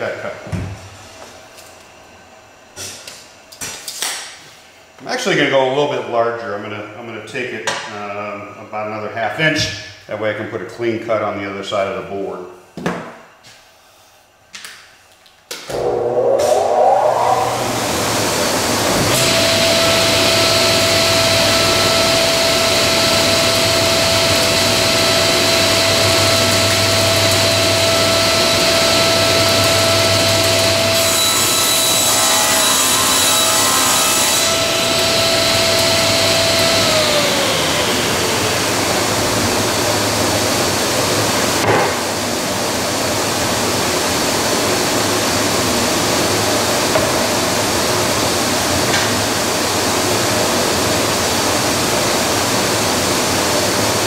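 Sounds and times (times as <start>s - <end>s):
steady rushing noise: 15.6s - 19.0s
table saw whining: 15.6s - 42.3s
saw cutting plywood: 30.8s - 35.5s.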